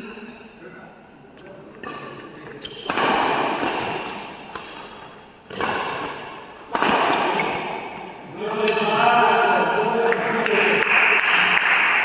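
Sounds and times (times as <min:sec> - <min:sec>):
rackets hitting shuttlecock: 0:01.8 - 0:10.2.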